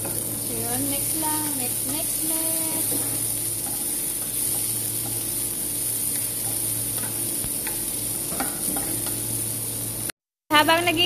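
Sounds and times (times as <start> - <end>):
onion and garlic sizzling in oil: 0.0 - 11.0
spatula scraping a pan: 1.8 - 9.2.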